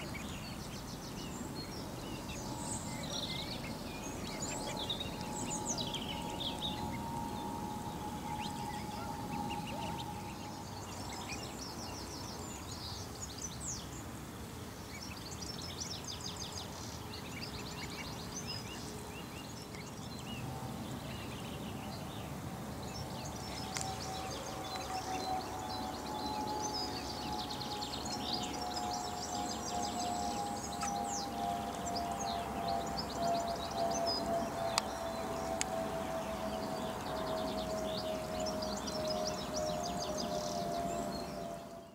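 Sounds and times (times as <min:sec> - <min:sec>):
ducklings peeping: 0:00.0 - 0:12.1, 0:17.2 - 0:19.9, 0:23.2 - 0:40.0
steady held tone: 0:00.0 - 0:12.2.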